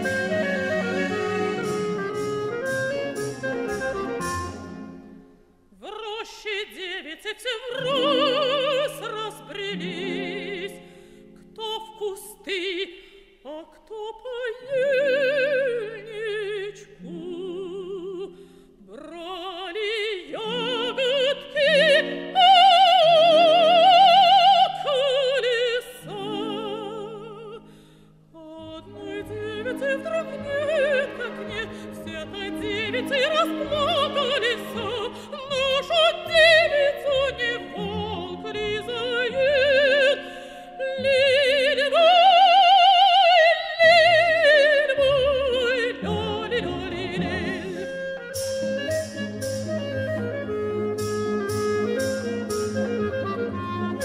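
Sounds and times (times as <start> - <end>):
orchestral accompaniment: 0.0 - 5.5, 28.9 - 40.4, 45.1 - 54.0.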